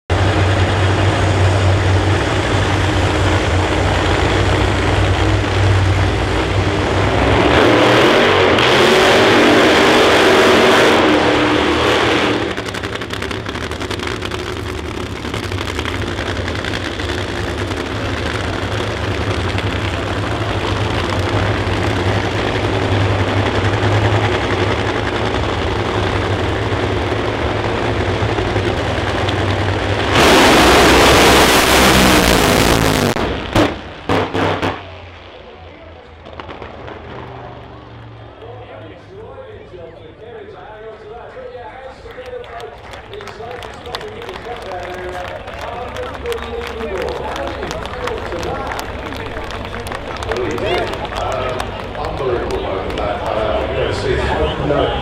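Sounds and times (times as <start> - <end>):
drag racing engines idling: 0.1 - 55.0
engine revving hard: 5.4 - 34.8.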